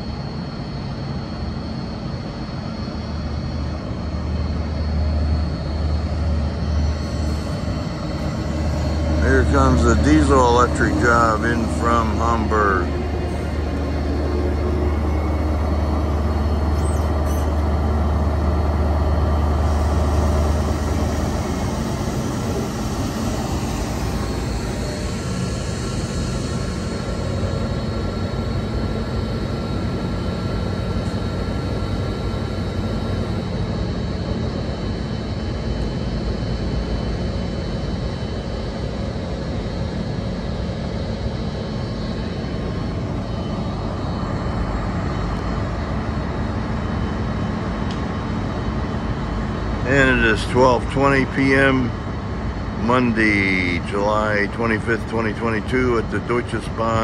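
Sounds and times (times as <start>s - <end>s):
faint high whines: 0.0s - 57.0s
locomotive engine drone: 0.0s - 57.0s.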